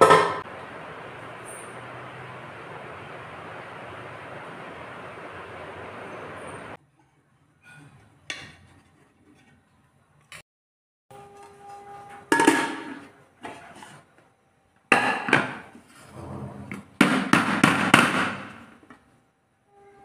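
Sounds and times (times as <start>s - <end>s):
knocks on metal pan: 0.0s - 0.4s, 14.9s - 15.7s
pan clanking on plate: 0.0s - 0.4s, 12.3s - 13.1s.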